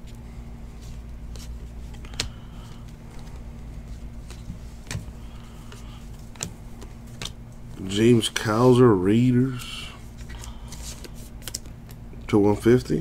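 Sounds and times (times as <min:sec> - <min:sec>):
steady low hum: 0:00.0 - 0:13.0
trading cards flipping: 0:00.7 - 0:08.4, 0:09.4 - 0:12.0.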